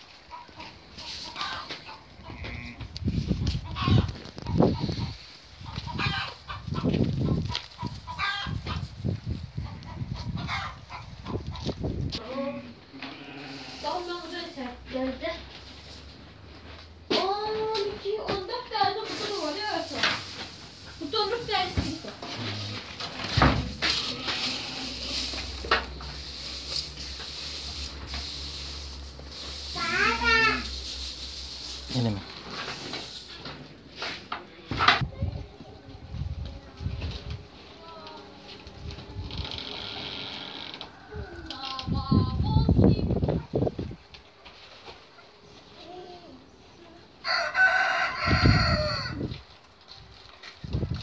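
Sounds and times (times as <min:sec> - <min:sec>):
dry grain rustling in a tub: 0:00.1 - 0:09.3, 0:13.4 - 0:34.3, 0:47.3 - 0:51.0
low rumbling noise: 0:35.0 - 0:40.6.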